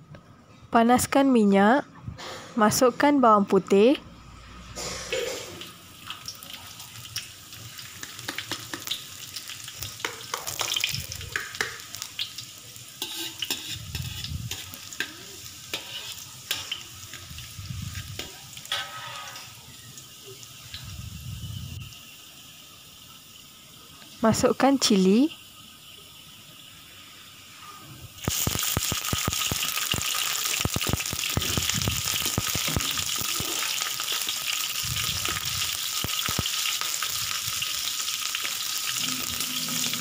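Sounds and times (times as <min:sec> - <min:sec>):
garlic sizzling in hot oil: 0:04.6 - 0:40.0
metal spatula scraping wok: 0:13.0 - 0:19.7, 0:39.0 - 0:40.0.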